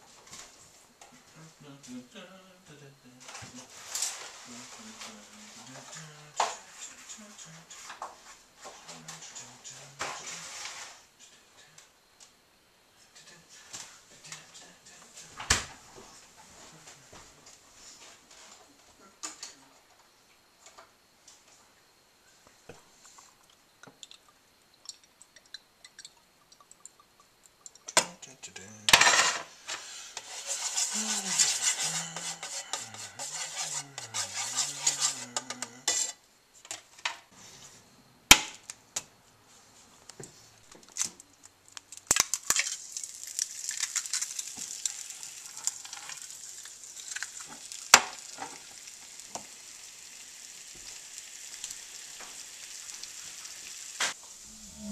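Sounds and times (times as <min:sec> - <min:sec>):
egg frying in oil: 0:23.2 - 0:28.0, 0:41.8 - 0:54.4
pots and pans clattering: 0:28.9 - 0:36.1
hissing: 0:29.8 - 0:36.2, 0:42.6 - 0:54.9.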